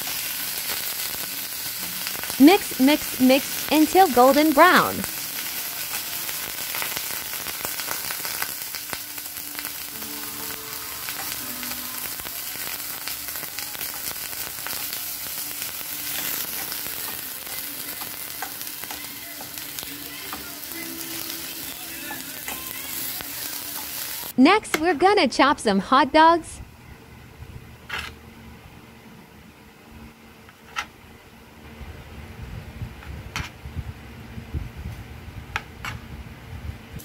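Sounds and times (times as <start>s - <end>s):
meat sizzling in a frying pan: 0.0s - 24.4s.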